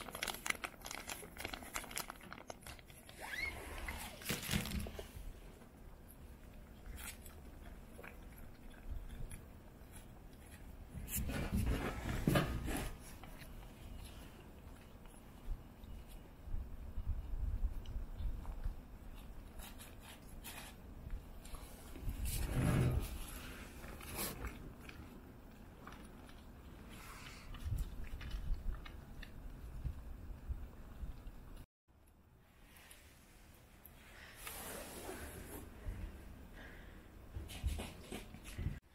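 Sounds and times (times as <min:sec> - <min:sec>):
cats chewing food: 0:00.0 - 0:22.2, 0:23.0 - 0:31.7.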